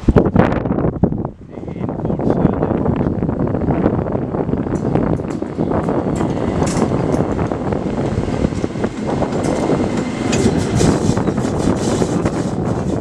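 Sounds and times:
electric locomotive passing: 0:02.5 - 0:13.0
wheels clattering over rail joints: 0:04.5 - 0:13.0.

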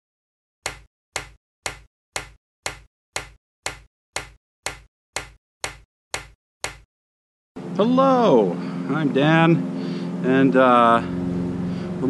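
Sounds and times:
sharp tapping sound effect: 0:00.6 - 0:06.9.

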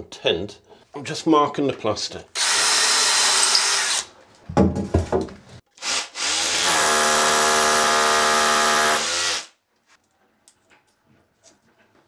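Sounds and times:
drill boring into masonry: 0:02.4 - 0:04.1, 0:05.8 - 0:09.6
knocks on wall: 0:04.5 - 0:05.4.

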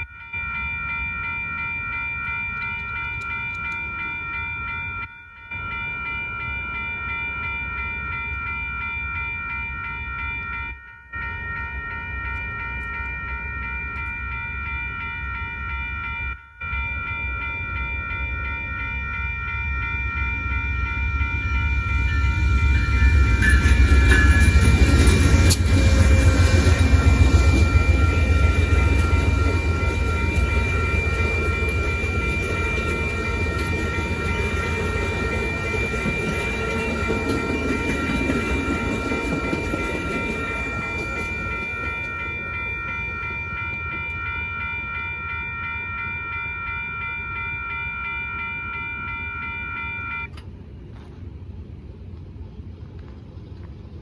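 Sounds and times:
crossing bell ringing: 0:00.0 - 0:50.5
diesel locomotive rumbling: 0:00.0 - 0:54.0
train cars clattering over rails: 0:23.0 - 0:44.3.

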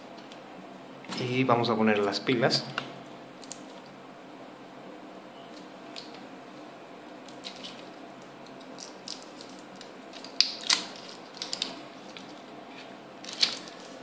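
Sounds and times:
plastic wrapping crinkling: 0:08.5 - 0:14.0.

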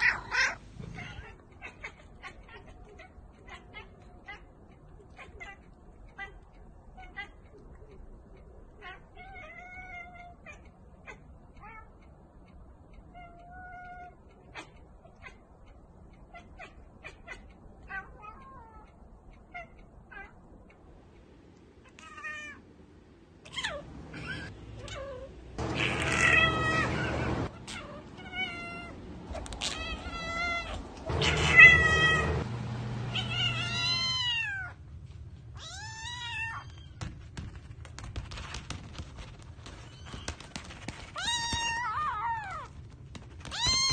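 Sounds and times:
cats meowing: 0:00.0 - 0:08.0, 0:08.7 - 0:12.0, 0:23.4 - 0:32.4, 0:33.1 - 0:34.8, 0:35.6 - 0:37.1, 0:39.6 - 0:43.9.

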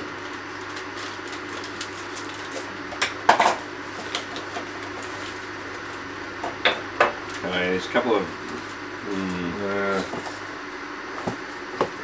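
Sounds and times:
steady low hum: 0:00.0 - 0:12.0
plastic bag crinkling: 0:00.2 - 0:02.7.

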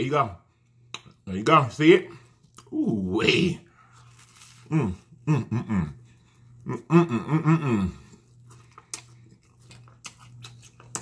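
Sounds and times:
lip smacks: 0:00.8 - 0:01.2, 0:08.6 - 0:11.0
wet chewing: 0:08.0 - 0:11.0.

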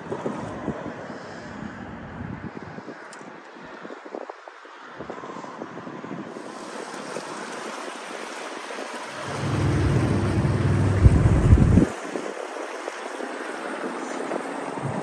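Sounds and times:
water hiss from boat wash: 0:06.3 - 0:15.0
boat engine drone: 0:09.0 - 0:12.0.

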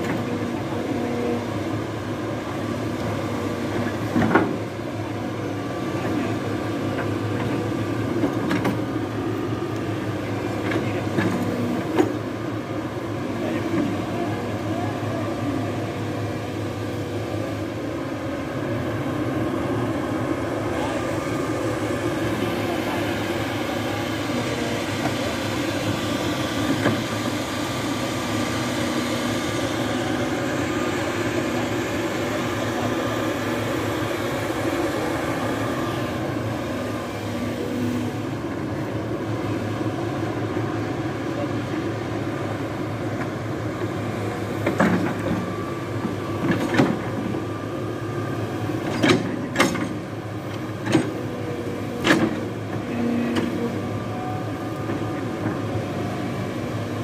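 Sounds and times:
excavator diesel engine: 0:00.0 - 0:57.0.

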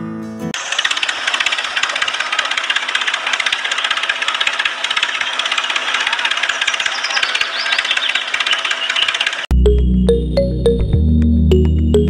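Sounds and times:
small motor rattling: 0:00.6 - 0:09.5.

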